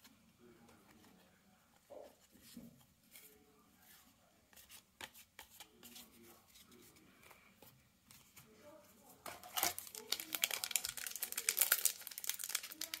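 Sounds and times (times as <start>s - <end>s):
cards being handled: 4.5s - 7.4s, 9.2s - 13.0s.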